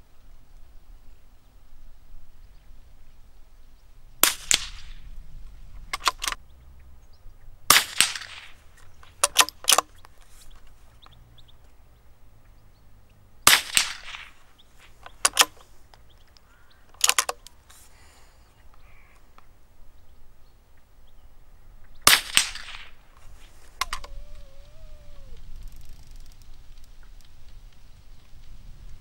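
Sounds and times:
rifle shots with echo: 0:04.2 - 0:05.0, 0:07.7 - 0:08.6, 0:13.4 - 0:14.4, 0:22.0 - 0:23.1
short quiet clicks: 0:23.2 - 0:28.6.

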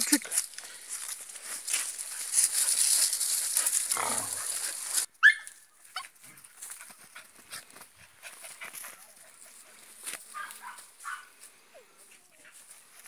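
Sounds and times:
rustling hiss: 0:00.4 - 0:05.1
puppy yipping: 0:05.2 - 0:06.1.

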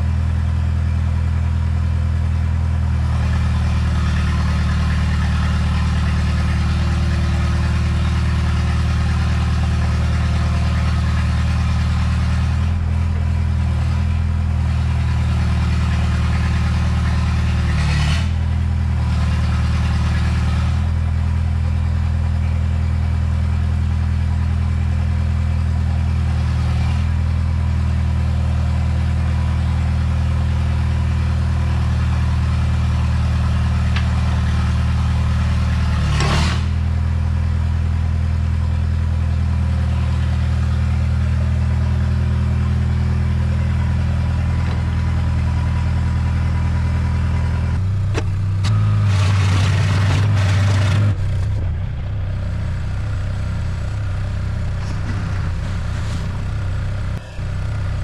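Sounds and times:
diesel engine running: 0:00.0 - 0:58.0
sharp knocks: 0:48.0 - 0:48.7.

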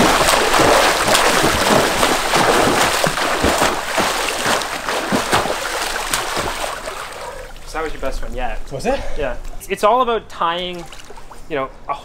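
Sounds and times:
swimmer splashing in pool: 0:00.0 - 0:07.7.

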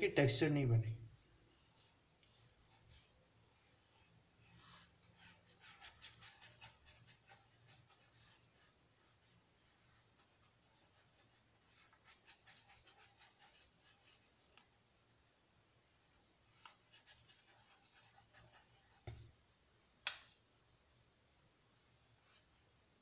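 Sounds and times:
paintbrush strokes on paper: 0:01.2 - 0:14.7, 0:16.4 - 0:19.7, 0:21.6 - 0:22.7.

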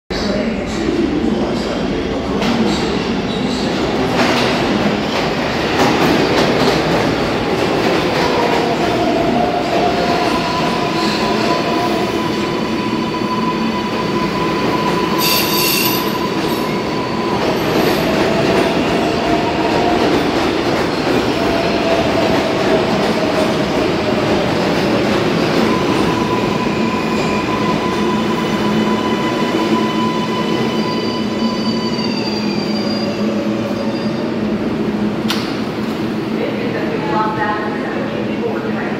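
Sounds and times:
train wheels rumbling on rail: 0:00.2 - 0:38.9
falling whine of braking train: 0:09.3 - 0:18.6, 0:25.7 - 0:34.3.

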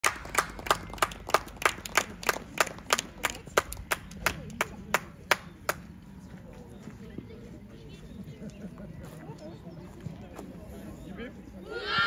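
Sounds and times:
hands clapping: 0:00.0 - 0:05.8.

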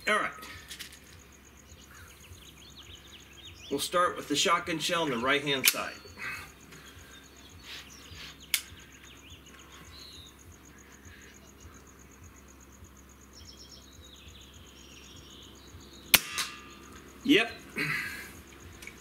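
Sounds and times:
birds chirping: 0:00.0 - 0:19.0
high insect trill: 0:00.0 - 0:19.0
air rifle action click: 0:08.5 - 0:08.8.

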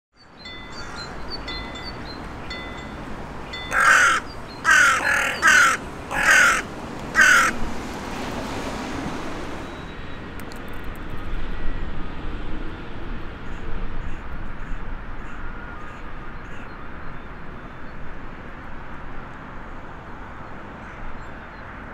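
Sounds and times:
crows cawing: 0:03.6 - 0:07.6.

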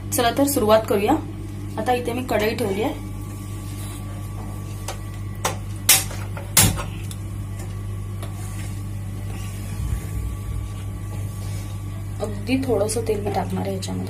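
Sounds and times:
steady low hum: 0:00.0 - 0:14.0.

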